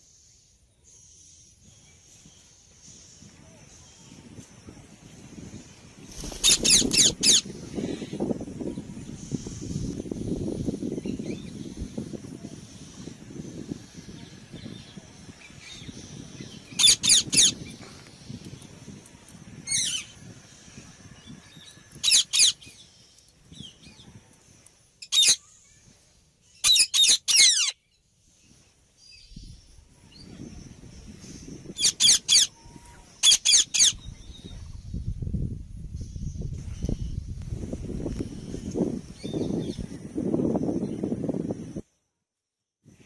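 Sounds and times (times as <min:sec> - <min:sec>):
parakeets screeching: 0:06.2 - 0:08.2, 0:16.7 - 0:17.7, 0:19.6 - 0:20.2, 0:21.5 - 0:22.7, 0:25.0 - 0:25.4, 0:26.6 - 0:27.8, 0:31.8 - 0:32.6, 0:33.2 - 0:34.0.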